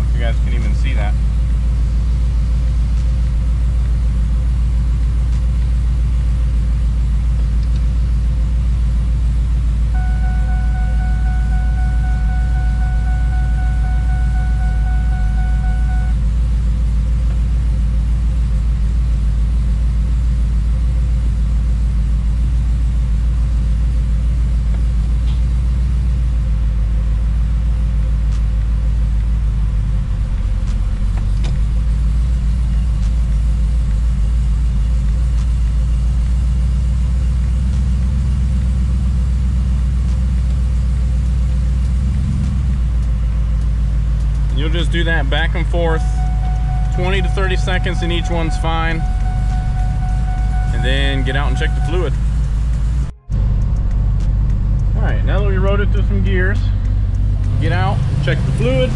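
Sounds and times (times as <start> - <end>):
truck engine idling: 0.0 - 58.9
steady high tone: 10.0 - 16.2, 44.6 - 58.9.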